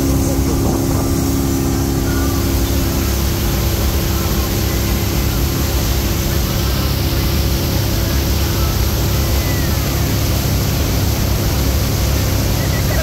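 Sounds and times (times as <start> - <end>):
boat engine running: 0.0 - 13.0
wake water rushing: 0.0 - 13.0.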